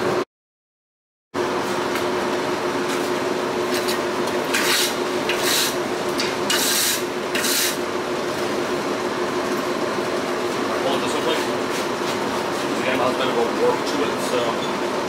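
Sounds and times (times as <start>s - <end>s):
rough rubbing scrapes of steel: 4.5s - 5.8s, 6.5s - 7.8s.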